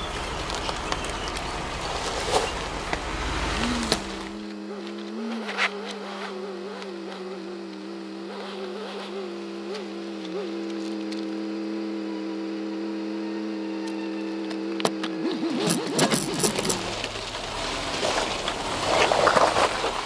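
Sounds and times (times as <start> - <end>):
rushing noise: 0.0 - 4.5
car engine idling: 0.0 - 5.3, 15.5 - 20.0.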